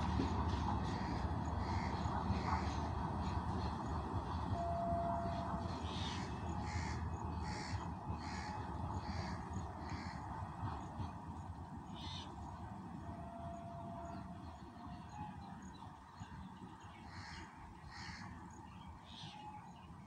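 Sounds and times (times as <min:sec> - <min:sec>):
train rumbling: 0:00.0 - 0:20.0
crows cawing: 0:06.7 - 0:10.2.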